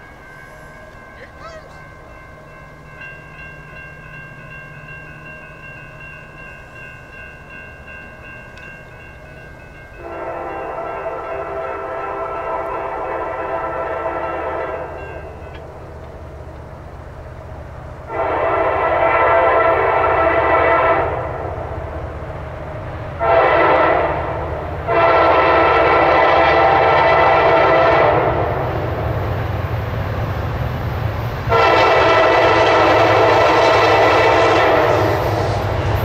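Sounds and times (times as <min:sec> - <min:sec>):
train rumble: 0:00.0 - 0:36.0
locomotive air horn blasts: 0:10.0 - 0:15.3, 0:18.1 - 0:21.5, 0:23.2 - 0:28.6, 0:31.5 - 0:35.8.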